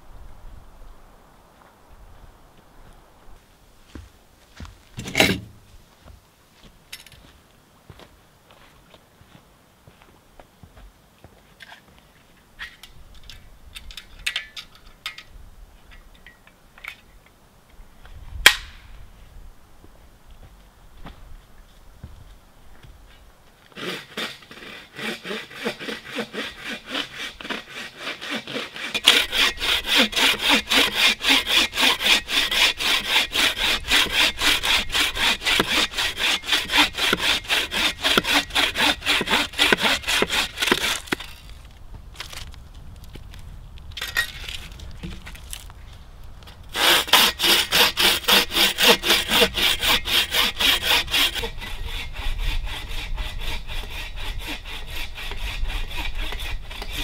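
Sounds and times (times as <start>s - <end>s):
hand saw cutting branch: 5.0s - 5.5s, 23.7s - 41.6s, 46.7s - 57.0s.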